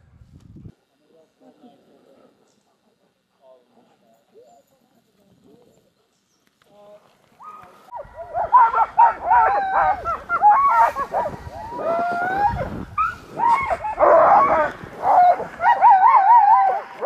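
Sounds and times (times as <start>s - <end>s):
sled dogs yipping and barking: 7.4s - 17.0s.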